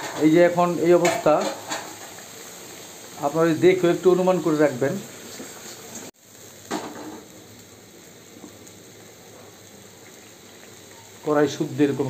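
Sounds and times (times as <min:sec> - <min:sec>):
curry simmering in a pan: 0:04.8 - 0:12.0.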